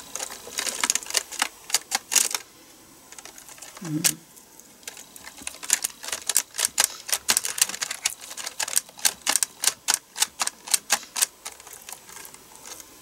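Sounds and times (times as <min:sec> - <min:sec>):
keyboard keys clacking: 0:04.9 - 0:12.3.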